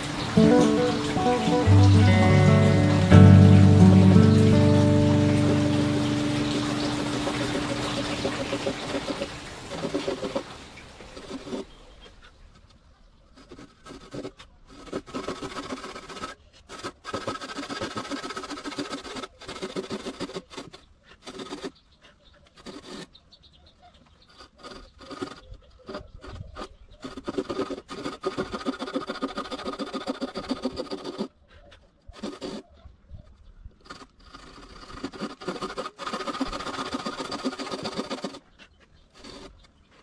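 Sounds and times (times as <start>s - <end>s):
tool rasping wood: 6.0s - 11.8s, 13.4s - 21.8s, 22.5s - 23.1s, 24.3s - 31.4s, 32.1s - 32.7s, 33.8s - 40.0s.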